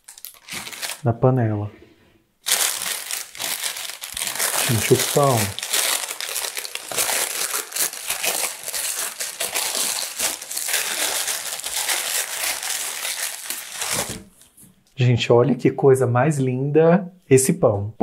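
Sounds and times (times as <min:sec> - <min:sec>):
baking paper crinkling: 0:00.0 - 0:01.1, 0:02.4 - 0:14.6.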